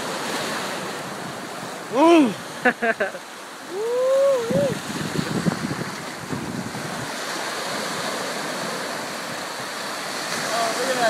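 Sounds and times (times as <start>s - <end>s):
ocean surf washing on beach: 0.0s - 11.0s
man exclaiming: 1.9s - 2.4s, 3.7s - 4.8s.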